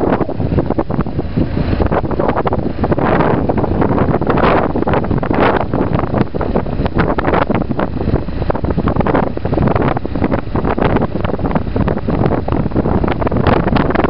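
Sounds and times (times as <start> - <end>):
motorcycle engine rumble: 0.0 - 14.0
wind buffeting microphone: 0.0 - 14.0.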